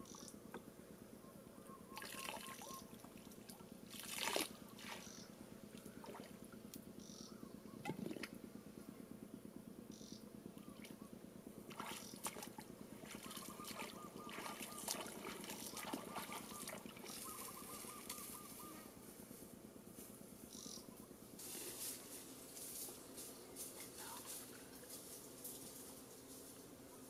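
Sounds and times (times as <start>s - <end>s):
bare feet splashing in water: 3.9s - 5.0s, 11.7s - 17.4s
chorus of small animals: 4.6s - 5.4s, 12.9s - 19.0s.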